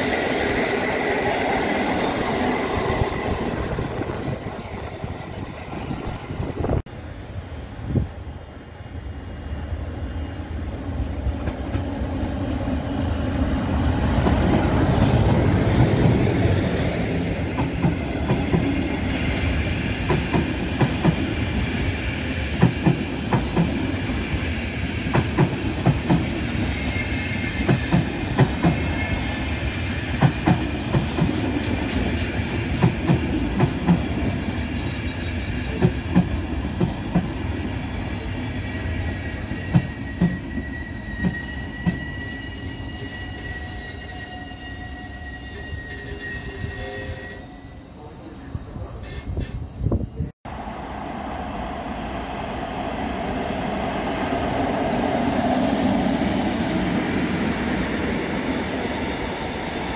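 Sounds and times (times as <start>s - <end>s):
high wheel squeal: 38.1s - 50.3s.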